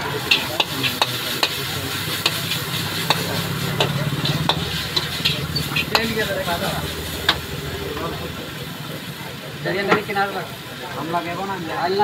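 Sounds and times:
metal spatula scraping wok: 0.0 - 7.5
frying sizzle: 0.0 - 12.0.

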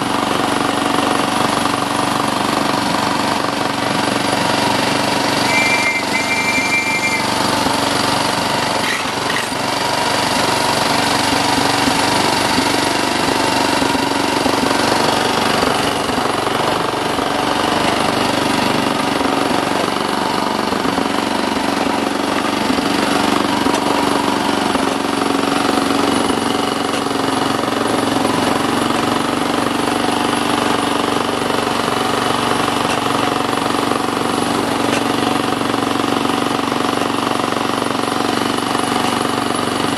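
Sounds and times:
engine drone: 0.0 - 39.9
train wheels clattering on track: 8.7 - 16.6.

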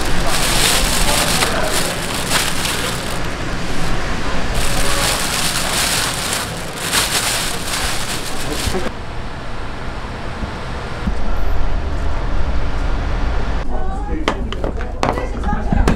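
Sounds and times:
plastic bag rustling: 0.0 - 8.9.

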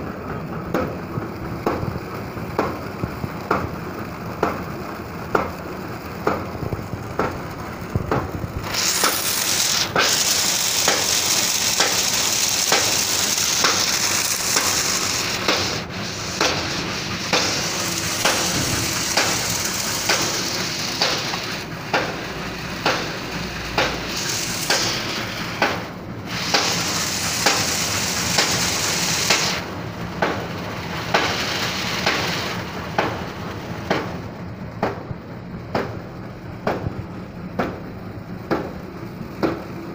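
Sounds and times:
machine knocking: 0.0 - 39.9
mechanical hum: 0.0 - 39.9
loud hiss: 7.6 - 34.2.

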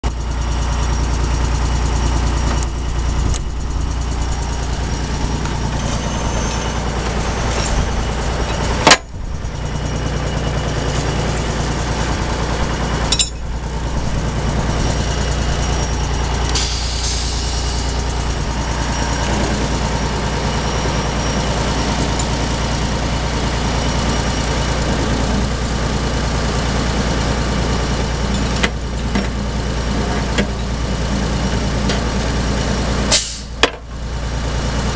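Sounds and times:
diesel engine running: 0.0 - 34.9
air hiss: 16.6 - 17.9, 33.1 - 33.5.

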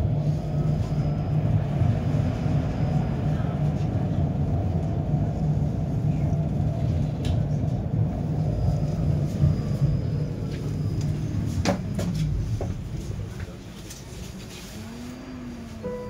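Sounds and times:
tram rumbling along track: 0.0 - 16.0.

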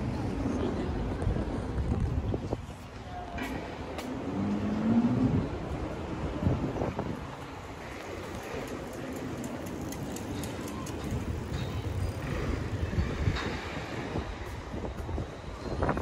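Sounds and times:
low traffic rumble: 0.0 - 16.0.

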